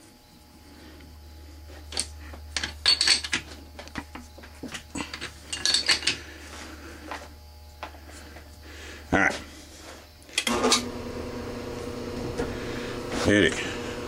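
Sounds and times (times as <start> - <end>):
low steady hum: 0.0 - 14.0
metallic clinks and rattles: 1.8 - 6.3.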